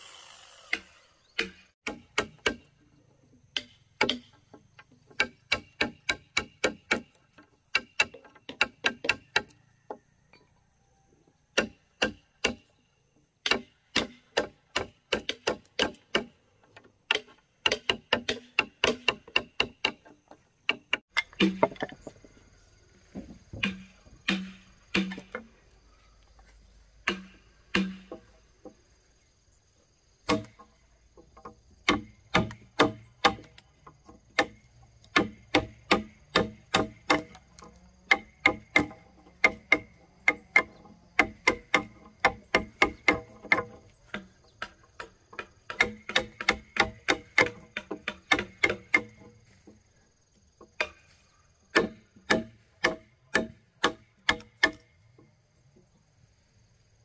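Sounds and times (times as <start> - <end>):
hand tool striking timber: 0.7 - 2.7, 3.5 - 9.6, 11.5 - 12.7, 13.4 - 16.4, 17.1 - 22.1, 23.2 - 25.5, 27.0 - 28.8, 30.3 - 49.8, 50.6 - 51.1, 51.7 - 54.9.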